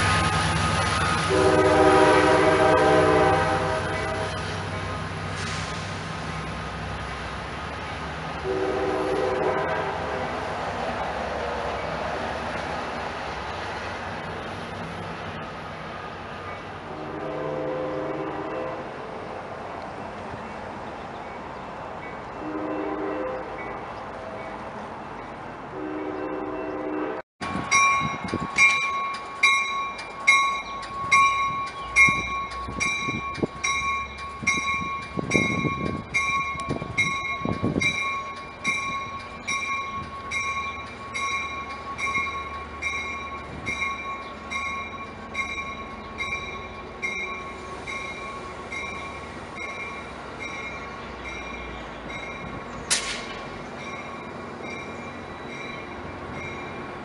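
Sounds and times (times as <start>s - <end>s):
train bell ringing: 27.4s - 57.0s.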